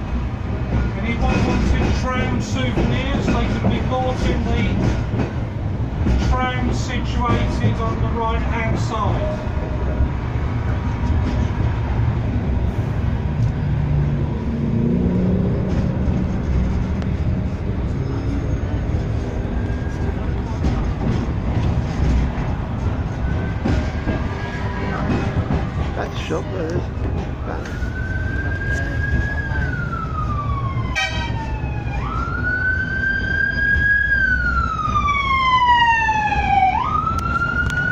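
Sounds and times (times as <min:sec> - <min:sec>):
tram rumbling on track: 0:00.0 - 0:37.9
wailing siren: 0:19.2 - 0:20.6, 0:22.8 - 0:25.2, 0:27.4 - 0:37.9.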